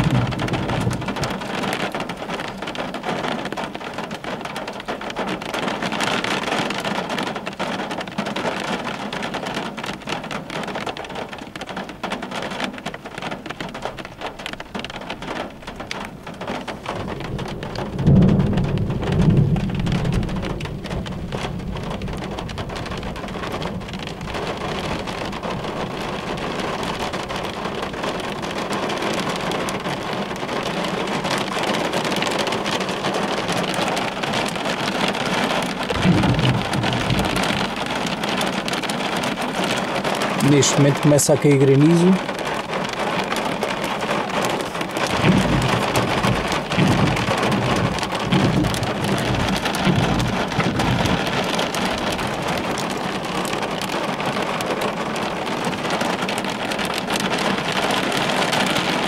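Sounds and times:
low rumble of thunder: 0.0s - 4.1s, 16.4s - 41.4s, 42.2s - 59.0s
rain beating on window glass: 0.0s - 59.0s.

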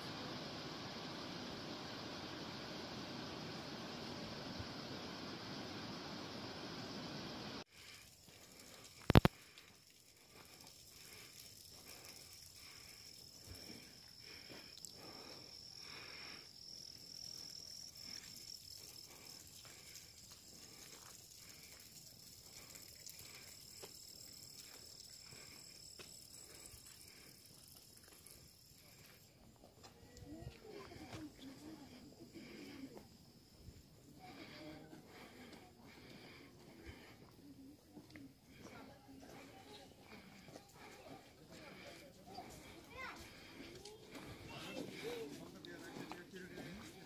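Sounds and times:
high-pitched insect drone: 7.7s - 36.3s
footsteps on paved path: 27.8s - 31.6s, 34.9s - 47.0s.

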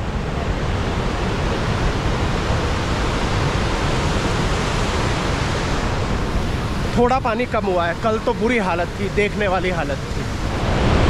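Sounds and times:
river torrent rushing: 0.0s - 11.0s.

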